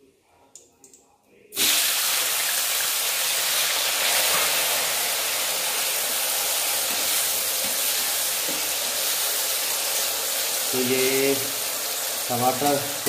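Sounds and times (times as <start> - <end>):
tomatoes sizzling in hot oil: 1.6 - 13.0
spatula stirring in metal pan: 6.5 - 9.3.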